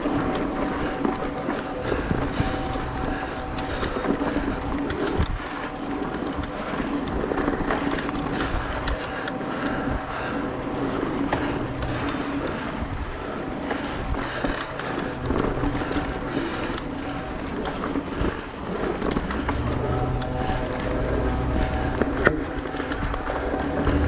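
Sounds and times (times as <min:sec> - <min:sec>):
bike chain and frame rattling: 0:00.0 - 0:24.0
bike tyres rushing over dirt: 0:00.0 - 0:24.0.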